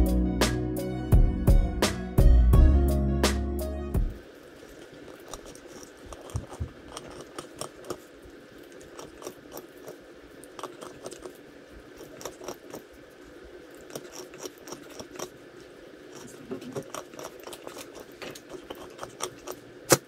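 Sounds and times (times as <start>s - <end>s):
puppy gnawing on bone: 4.8s - 20.0s.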